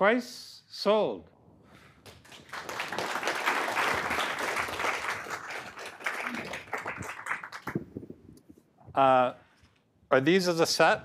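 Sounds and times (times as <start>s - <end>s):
audience applauding: 2.0s - 7.9s.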